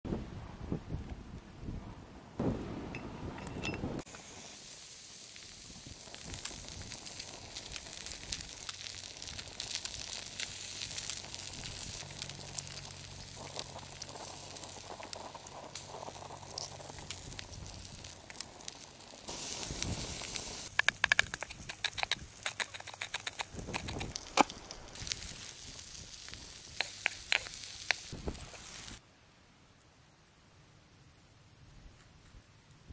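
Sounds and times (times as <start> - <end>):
food sizzling in skillet: 4.0 - 29.0
taps and clicks: 20.7 - 24.5.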